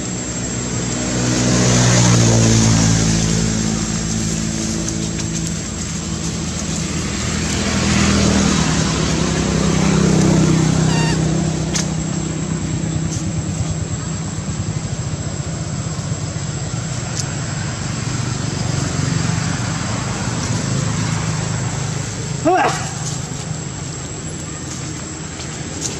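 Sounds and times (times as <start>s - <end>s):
high whine: 0.0s - 25.9s
motor engine droning: 0.0s - 25.9s.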